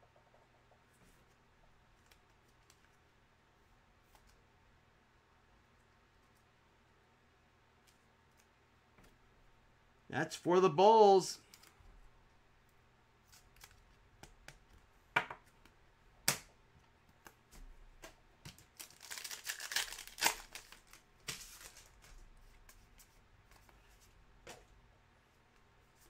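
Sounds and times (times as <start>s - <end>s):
cards shuffling rustles: 13.2s - 14.8s, 17.1s - 24.6s
foil wrapper tearing and crinkling: 18.6s - 22.0s.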